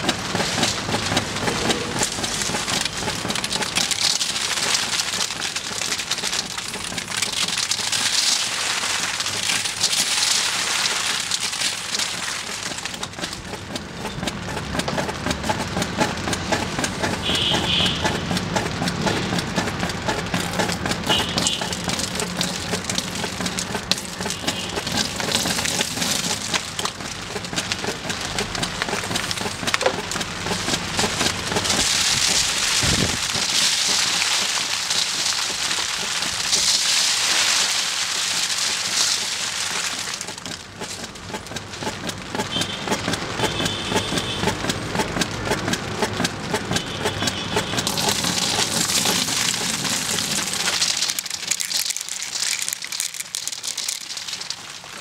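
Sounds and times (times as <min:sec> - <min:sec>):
table fan humming: 0:00.0 - 0:50.8
paint and glitter spattering: 0:31.3 - 0:40.6, 0:47.9 - 0:54.9.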